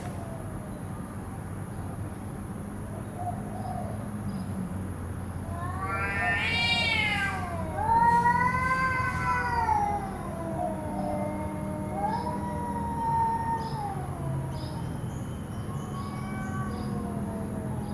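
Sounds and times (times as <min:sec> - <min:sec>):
cats yowling: 0:05.4 - 0:17.9.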